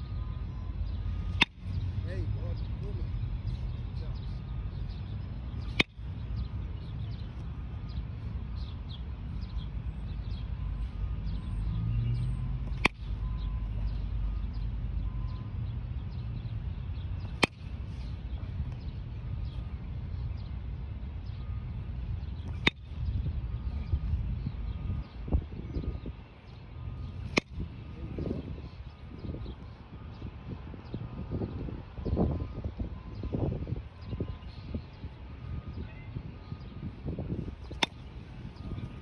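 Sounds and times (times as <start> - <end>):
baseball bat cracking ball: 1.3 - 1.8, 5.6 - 6.0, 12.6 - 13.1, 17.2 - 17.7, 22.4 - 22.9, 27.2 - 27.7, 37.6 - 38.1.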